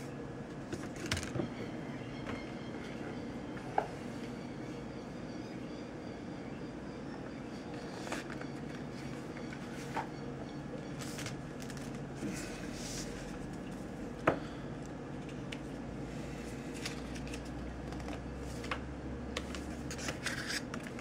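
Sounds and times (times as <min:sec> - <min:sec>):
steady background hum: 0:00.0 - 0:21.0.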